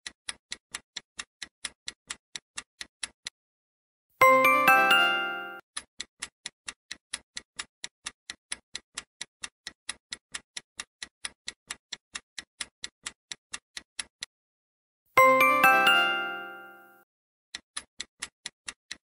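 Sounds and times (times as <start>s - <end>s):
countdown timer ticking: 4.2s - 5.6s, 15.2s - 16.9s.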